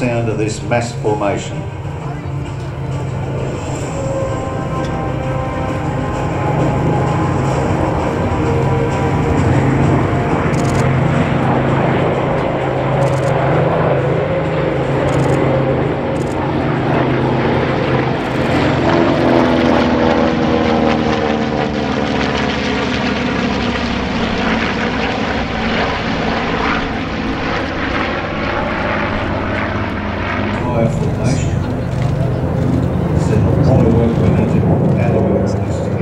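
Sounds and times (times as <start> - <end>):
propeller planes droning overhead: 0.0 - 36.0.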